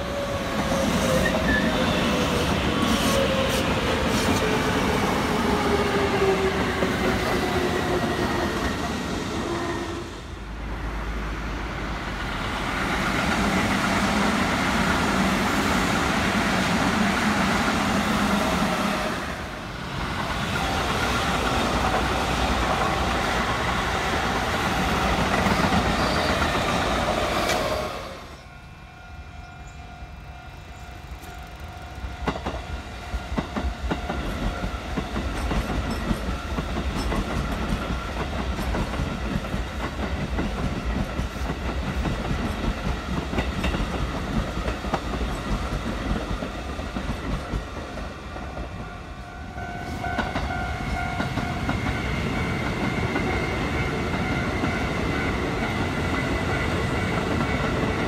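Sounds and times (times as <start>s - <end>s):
train rushing past: 0.0s - 58.0s
train whine: 0.0s - 58.0s
wheels clacking over rail joints: 33.3s - 48.8s.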